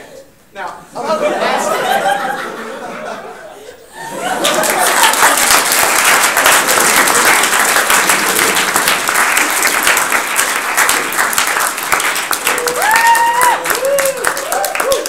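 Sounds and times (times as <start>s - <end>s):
audience applauding and cheering: 4.0s - 15.0s.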